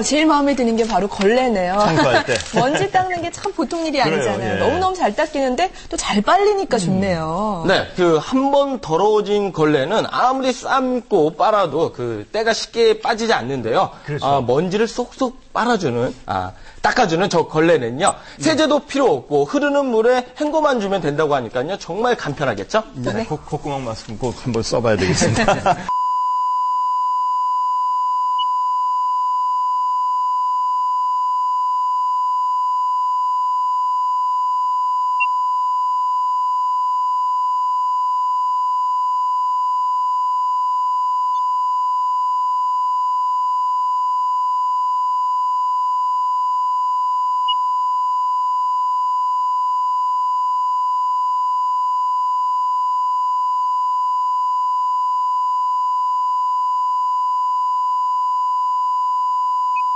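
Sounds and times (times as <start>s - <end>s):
steady sine test tone: 25.9s - 59.9s.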